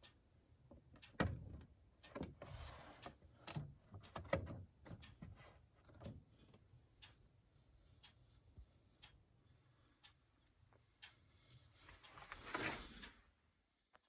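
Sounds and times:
short rustle or scrape: 11.8 - 13.1.

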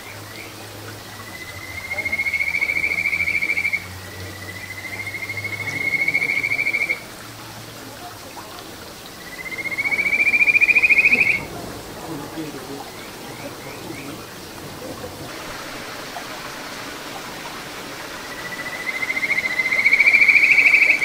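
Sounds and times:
frog calling in trills: 1.1 - 7.1, 9.1 - 15.3, 18.2 - 21.0.

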